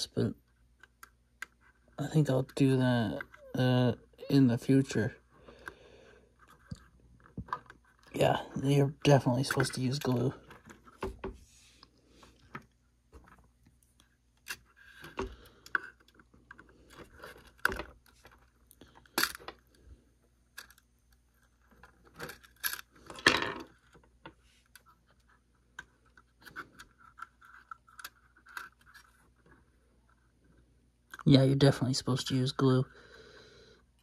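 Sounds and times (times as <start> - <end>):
small parts clicking and scraping: 11.7 - 31.3.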